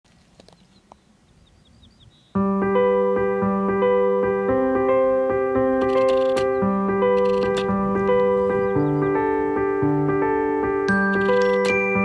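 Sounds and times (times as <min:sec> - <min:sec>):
electric piano chords: 0:02.3 - 0:12.0.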